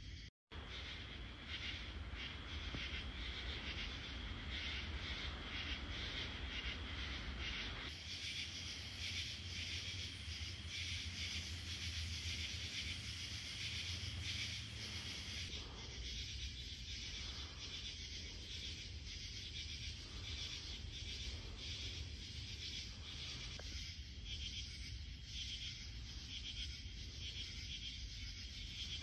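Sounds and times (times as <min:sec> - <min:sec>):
pulsing insect chorus: 0:00.0 - 0:29.0.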